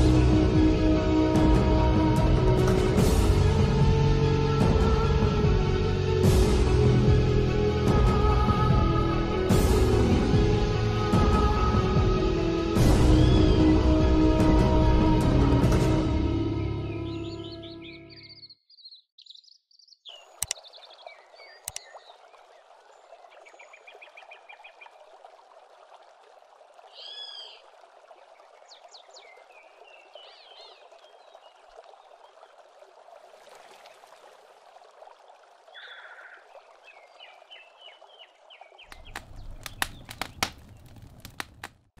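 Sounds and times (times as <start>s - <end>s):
birds chirping and trilling: 16.6s - 22.3s, 26.9s - 27.6s, 35.8s - 41.0s
sharp cracks: 38.9s - 42.0s.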